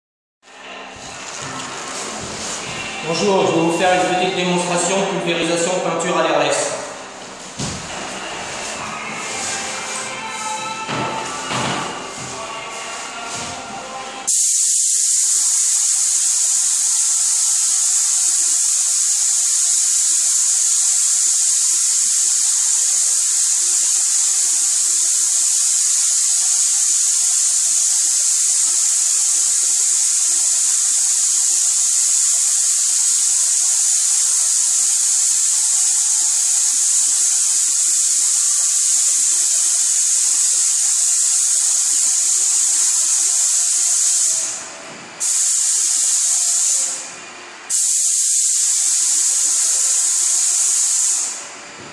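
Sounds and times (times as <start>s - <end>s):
paint spray gun hissing: 14.3s - 44.6s, 45.2s - 47.0s, 47.7s - 51.4s.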